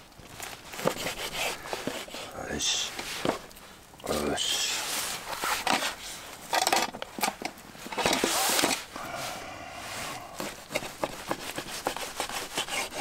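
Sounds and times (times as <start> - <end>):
rustling: 0.0 - 13.0.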